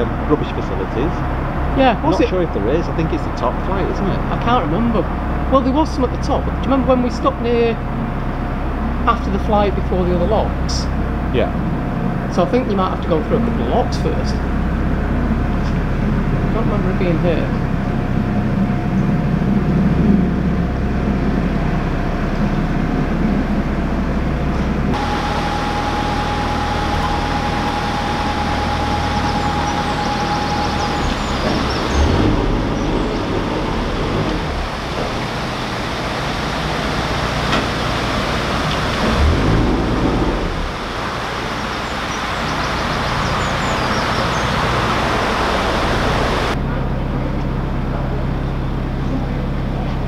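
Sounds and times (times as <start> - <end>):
rushing noise: 0.0 - 47.1
boat diesel engine running: 0.0 - 50.0
thin whistle-like tone: 25.0 - 32.4.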